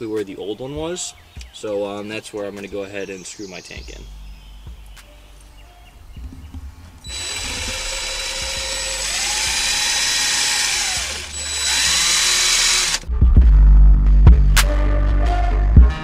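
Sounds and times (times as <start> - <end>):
loud bass-heavy music: 6.0 - 16.0
cordless drill motor whine: 7.0 - 13.0.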